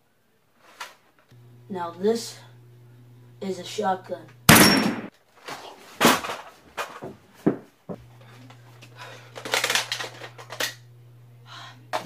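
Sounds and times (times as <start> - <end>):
low hum: 1.4 - 5.1, 8.0 - 12.0.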